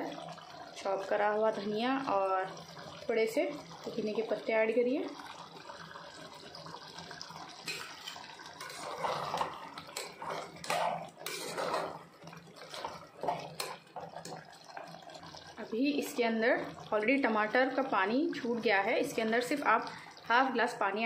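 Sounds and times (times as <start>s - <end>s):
spoon stirring thick gravy: 7.6s - 15.5s.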